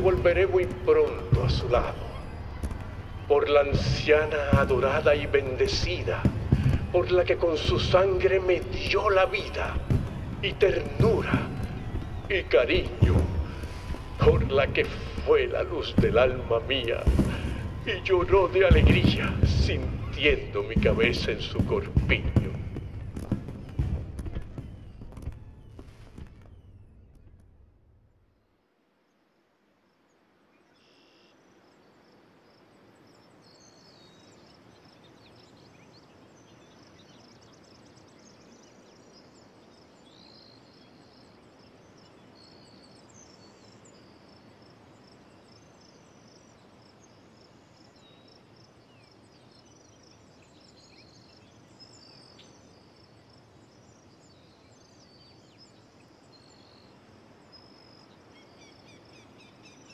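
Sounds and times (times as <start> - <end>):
small birds chirping: 0.0 - 27.4, 30.1 - 59.9.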